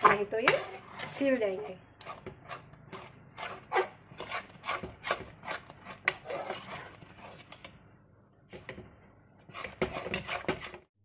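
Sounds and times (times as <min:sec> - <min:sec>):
metal spatula scraping a pan: 0:00.0 - 0:07.5, 0:09.4 - 0:10.9.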